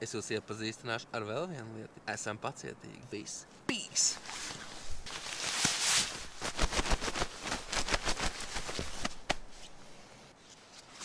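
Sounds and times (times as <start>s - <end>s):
sleeping bag rustling: 4.2s - 9.8s.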